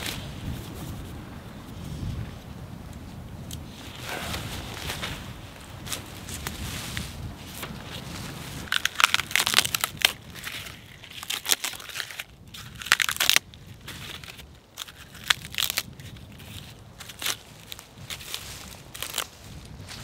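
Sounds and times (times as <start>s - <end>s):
birch bark crackling and tearing: 3.4s - 20.0s.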